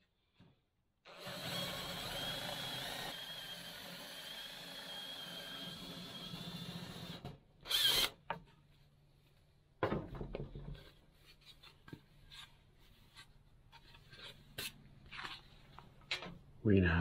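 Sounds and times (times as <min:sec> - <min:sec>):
cordless drill whining: 0:01.1 - 0:08.2.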